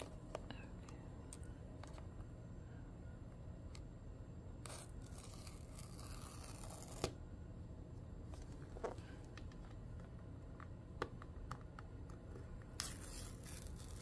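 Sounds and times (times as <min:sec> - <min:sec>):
paper strip tearing: 0:04.6 - 0:07.1, 0:12.8 - 0:14.0.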